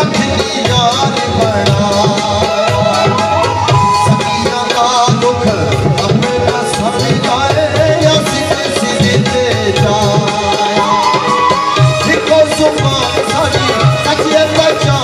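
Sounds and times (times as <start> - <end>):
harmonium: 0.0 - 15.0
tabla rhythm: 0.0 - 15.0
bamboo flute melody: 2.4 - 5.2, 10.6 - 12.7.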